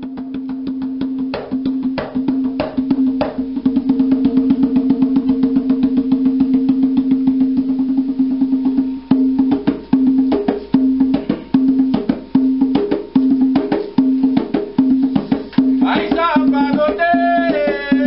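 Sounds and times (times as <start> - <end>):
hand drum played with hands: 0.0 - 18.0
fast clicking beat: 12.7 - 18.0.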